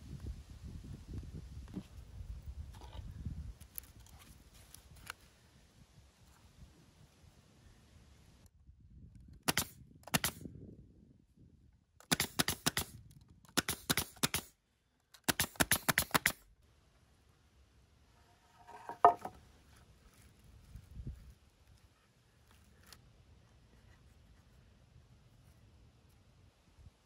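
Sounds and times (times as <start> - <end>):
nail gun shots: 9.4 - 10.4, 12.0 - 14.5, 15.2 - 16.4.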